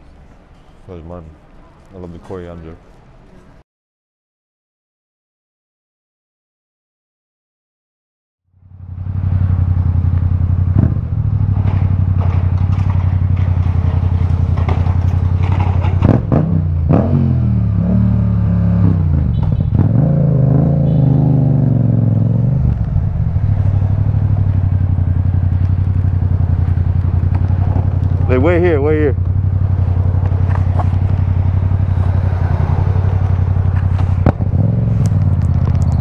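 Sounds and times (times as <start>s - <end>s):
motorcycle engine running: 8.6s - 36.0s.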